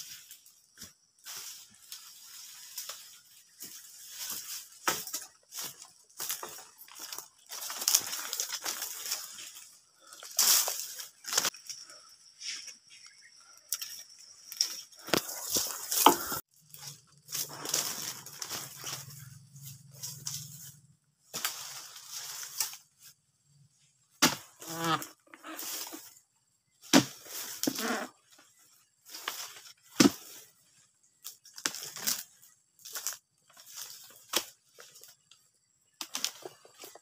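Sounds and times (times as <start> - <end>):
stalk creaking: 0.0 - 22.9.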